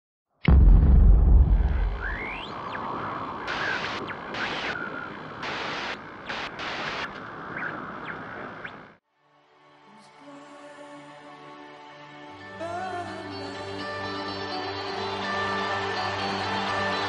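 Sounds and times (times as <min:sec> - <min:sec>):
deep boom: 0:00.5 - 0:02.4
steady hiss with surges: 0:01.8 - 0:09.0.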